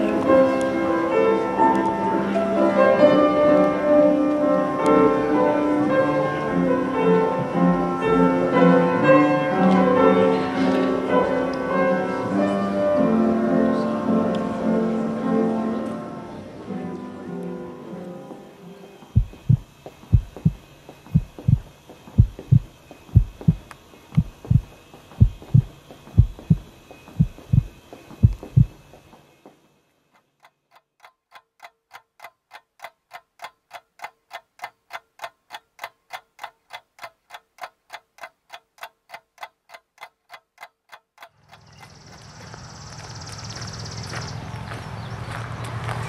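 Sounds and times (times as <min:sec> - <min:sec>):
slow heartbeat thumps: 0:19.1 - 0:29.2
clock ticking: 0:19.2 - 0:29.0, 0:30.2 - 0:41.9
steady rushing noise: 0:19.2 - 0:29.1.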